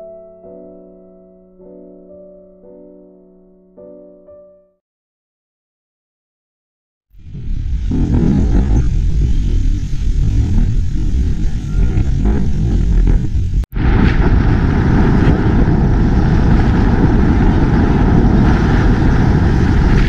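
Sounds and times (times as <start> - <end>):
wind on microphone: 7.2 - 20.0.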